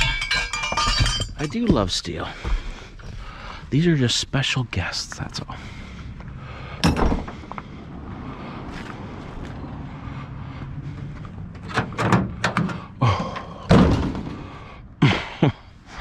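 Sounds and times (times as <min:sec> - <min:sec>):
clattering knocks: 0:00.0 - 0:01.9
vehicle door slamming: 0:06.8 - 0:07.4, 0:11.7 - 0:14.5.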